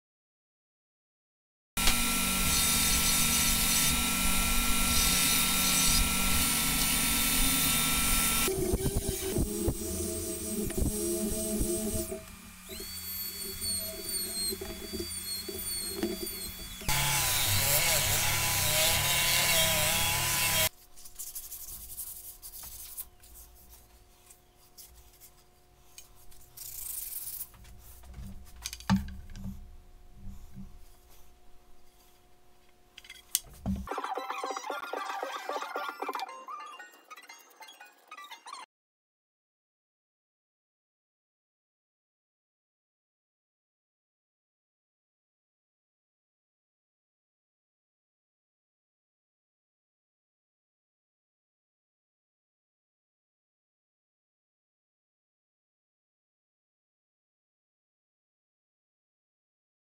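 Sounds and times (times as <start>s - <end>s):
belt sander motor whirring: 1.8s - 20.7s
bench power tool running: 1.8s - 20.7s
wood rubbing and scraping: 10.6s - 17.8s.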